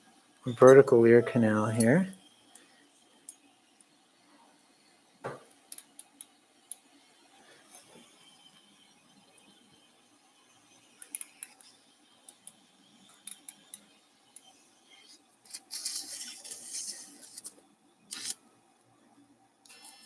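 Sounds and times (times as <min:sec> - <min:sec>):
hiss: 0:19.7 - 0:20.0.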